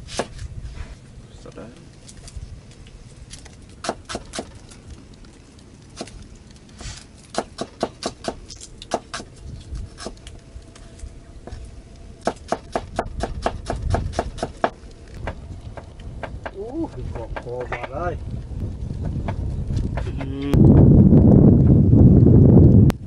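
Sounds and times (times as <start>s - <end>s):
cleaver chopping on wooden board: 7.3s - 9.3s, 12.2s - 16.6s.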